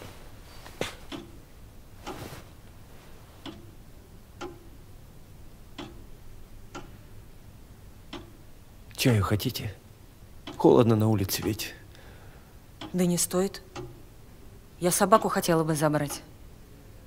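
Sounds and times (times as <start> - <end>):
clock ticking: 1.1 - 2.3, 3.4 - 5.0, 5.6 - 7.1, 7.9 - 9.6, 10.2 - 16.4.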